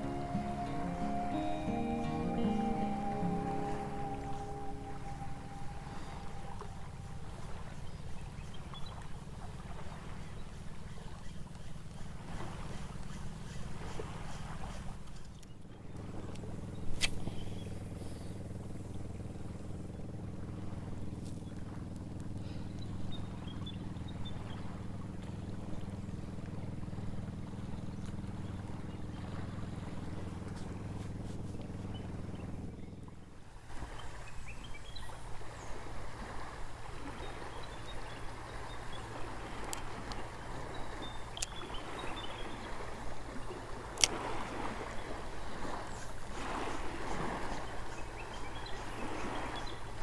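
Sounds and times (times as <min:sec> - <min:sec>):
boat engine hum: 0:00.0 - 0:50.0.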